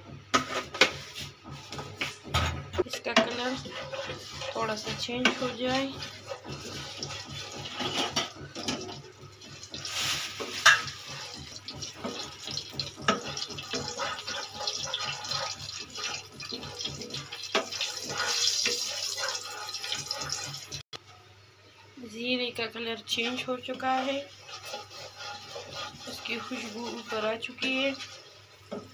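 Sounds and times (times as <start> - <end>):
spatula stirring and scraping pan: 0.0 - 20.8, 22.6 - 28.9
seeds sizzling in hot oil: 9.3 - 20.8, 23.4 - 28.9.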